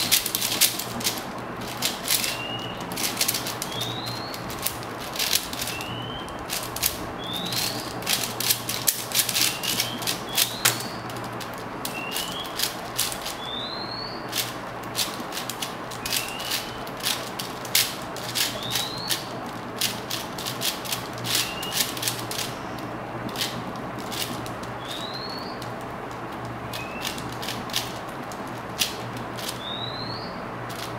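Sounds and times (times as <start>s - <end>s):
speed cube clicking: 0.0s - 13.6s, 14.2s - 29.8s, 30.6s - 30.9s
bird whistled call: 2.2s - 2.8s, 3.6s - 4.5s, 5.6s - 6.4s, 7.2s - 7.8s, 9.4s - 11.0s, 11.9s - 12.6s, 13.4s - 14.2s, 16.0s - 16.8s, 18.5s - 19.3s, 21.3s - 21.9s, 24.8s - 25.6s, 26.7s - 27.2s, 29.6s - 30.4s.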